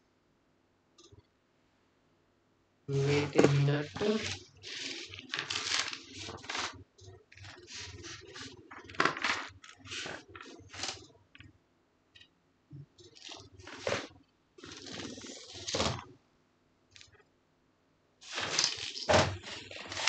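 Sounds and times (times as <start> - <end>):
small objects clicking and clattering: 18.2 - 20.0.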